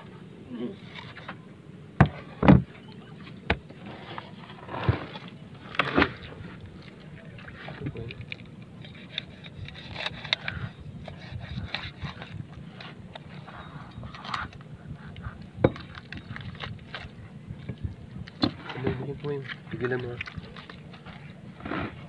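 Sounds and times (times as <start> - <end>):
steady low hum: 0.0 - 22.0
thumps on wooden boards: 2.0 - 2.7.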